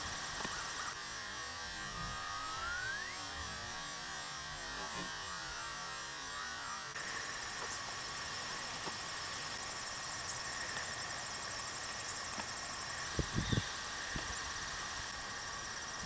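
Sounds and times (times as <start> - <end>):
crickets chirping: 6.9 - 16.0.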